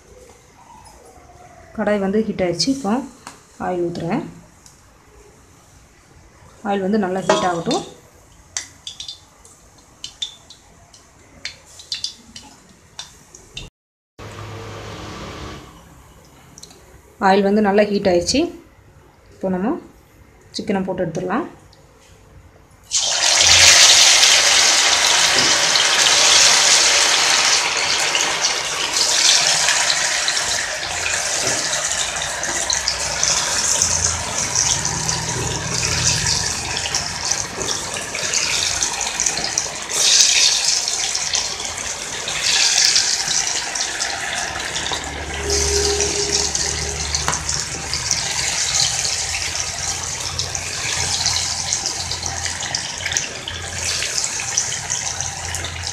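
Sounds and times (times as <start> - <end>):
chicken sizzling in hot oil: 22.9 - 55.9.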